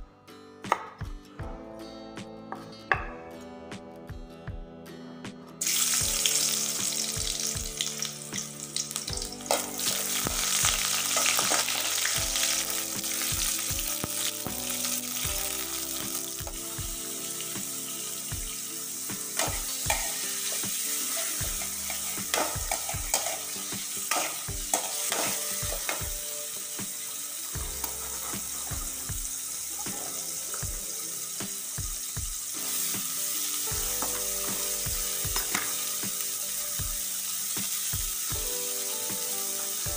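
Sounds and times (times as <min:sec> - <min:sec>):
vegetables sizzling in hot oil: 0:05.6 - 0:39.9
metal spatula scraping a wok: 0:19.4 - 0:26.0.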